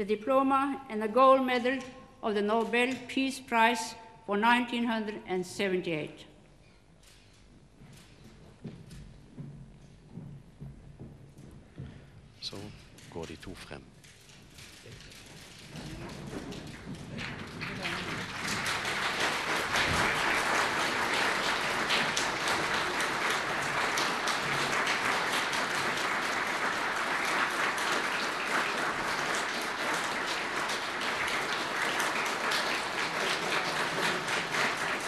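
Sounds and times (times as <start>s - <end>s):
audience applauding: 15.1s - 35.0s.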